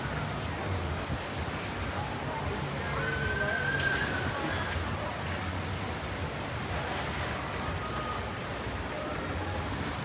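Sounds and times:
faint distant voices: 0:00.0 - 0:10.0.

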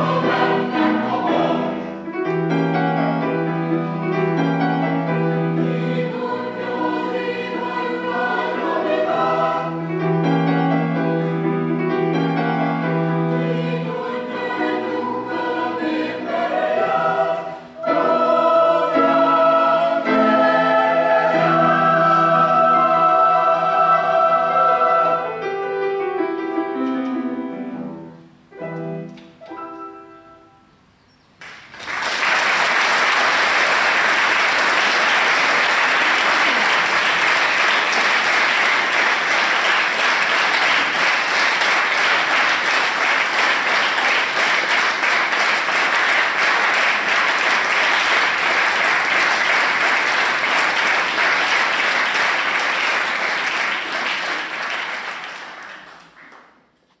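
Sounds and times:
audience applauding: 0:31.4 - 0:56.6.

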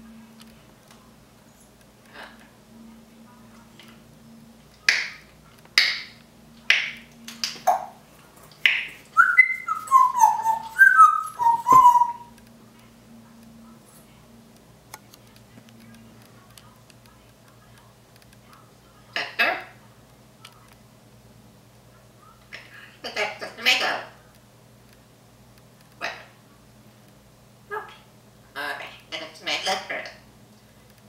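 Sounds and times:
parrot clicking: 0:04.9 - 0:12.5
parrot whistling falling notes: 0:09.2 - 0:12.3.

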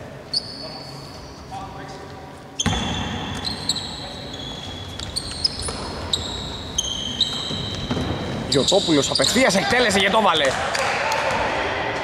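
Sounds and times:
shoes squeaking on hardwood court: 0:00.3 - 0:10.5
ball bouncing: 0:02.6 - 0:03.6, 0:07.2 - 0:08.5.

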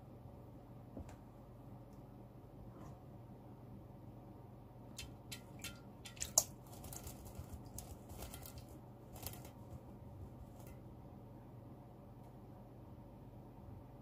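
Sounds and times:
bird splashing in water: 0:05.0 - 0:07.0.

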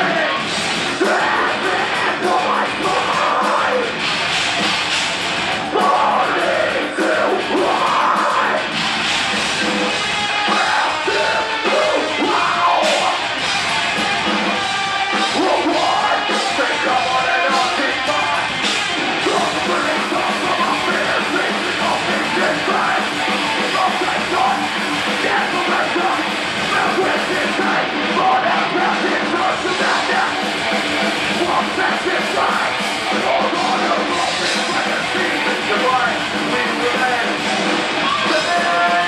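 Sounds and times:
distorted electric guitars: 0:00.0 - 0:39.0
drums: 0:00.0 - 0:39.0.

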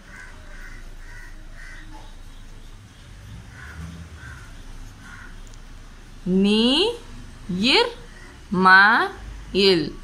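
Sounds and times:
bird calling: 0:00.0 - 0:05.6.

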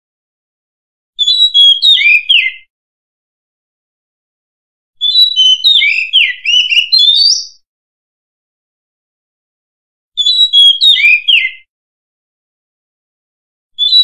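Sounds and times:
bird singing whistled notes: 0:01.2 - 0:02.7, 0:05.0 - 0:07.7, 0:10.2 - 0:11.7, 0:13.8 - 0:14.0.

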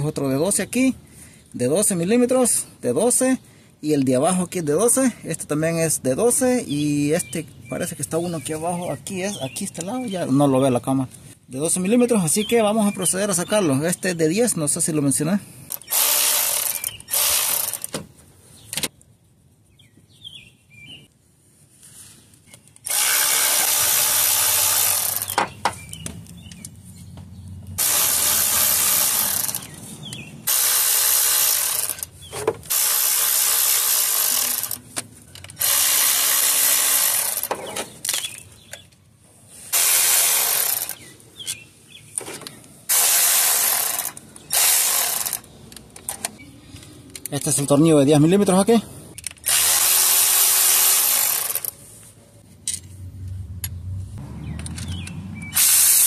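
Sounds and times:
power tool running in bursts: 0:15.9 - 0:17.9, 0:22.9 - 0:25.4, 0:27.8 - 0:29.7, 0:30.5 - 0:32.0, 0:32.7 - 0:34.8, 0:35.6 - 0:37.5, 0:49.5 - 0:51.7, 0:55.6 - 0:56.0
clicks: 0:54.5 - 0:55.6.

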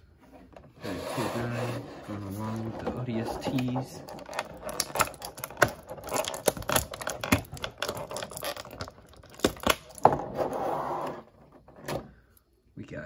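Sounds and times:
plastic packaging crinkling: 0:03.4 - 0:10.0.

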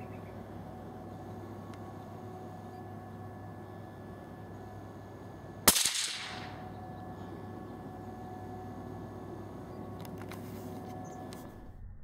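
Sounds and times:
gunshot: 0:05.7 - 0:06.5.

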